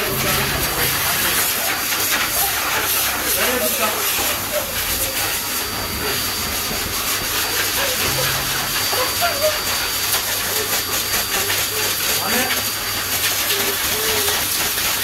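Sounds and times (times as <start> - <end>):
faint voices: 0.0 - 6.5, 7.4 - 12.7
blower dryer hissing: 0.0 - 15.0.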